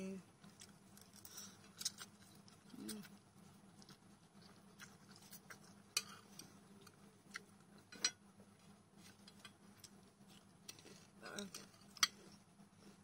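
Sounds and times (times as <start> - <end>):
eating noodles and crisps: 0.2 - 13.0.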